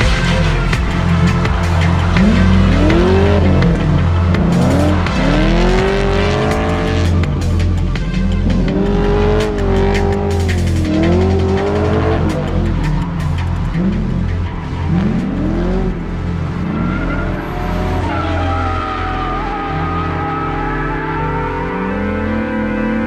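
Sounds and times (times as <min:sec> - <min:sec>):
background music: 0:00.0 - 0:23.0
car engines revving: 0:00.0 - 0:23.0
tyre squeal: 0:16.5 - 0:22.9.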